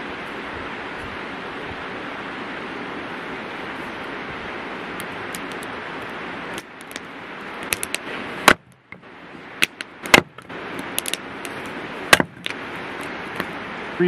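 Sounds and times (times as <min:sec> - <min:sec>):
river rushing: 0:00.0 - 0:14.0
campfire popping: 0:04.9 - 0:13.5
hatchet splitting firewood: 0:06.5 - 0:13.5.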